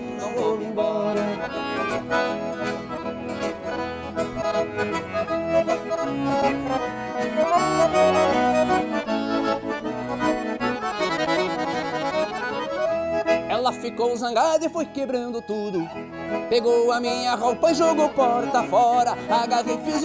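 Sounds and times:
accordion melody: 0:00.0 - 0:20.0
band playing a steady beat: 0:01.1 - 0:13.5.

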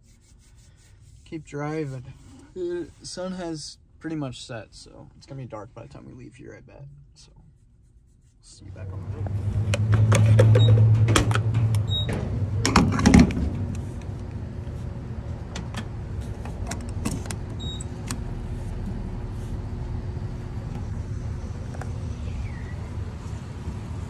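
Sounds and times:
fuel pump humming: 0:08.8 - 0:23.1.

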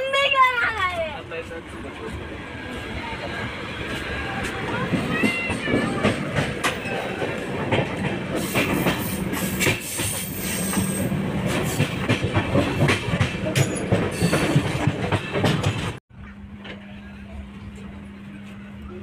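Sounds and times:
train coach rumble and hum: 0:00.0 - 0:19.0.

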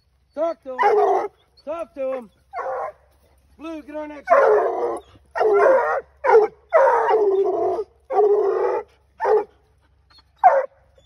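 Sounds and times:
dog barking drawn-out barks: 0:05.4 - 0:07.2, 0:09.2 - 0:09.5.

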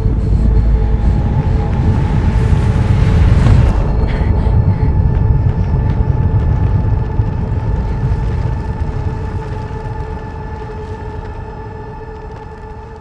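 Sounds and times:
held two-note hum: 0:00.0 - 0:05.5
deep heavy rumble: 0:00.0 - 0:13.0.

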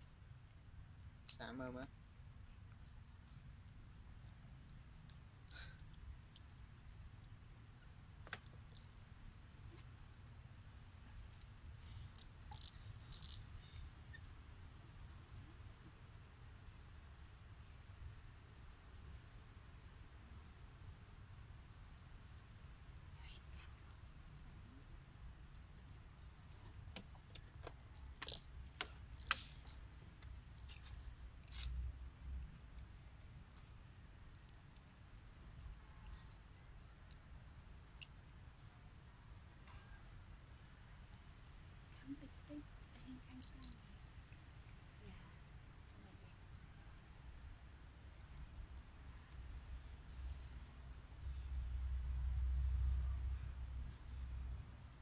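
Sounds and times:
faint low rumble: 0:00.0 - 0:55.0
monkey chewing crunchy pod: 0:24.4 - 0:31.7.

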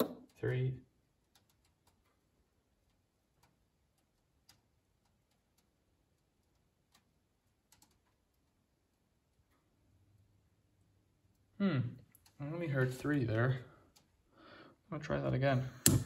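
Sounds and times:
gas hob valves clicking: 0:15.8 - 0:16.0.

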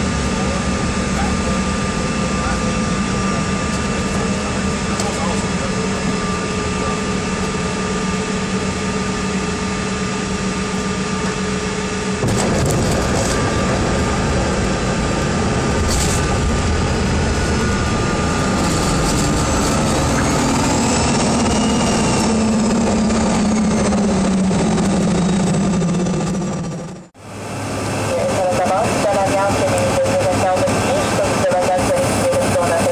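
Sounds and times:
whine rising and falling in pitch: 0:04.7 - 0:27.1
jet engines and air conditioning hum: 0:27.2 - 0:32.9.

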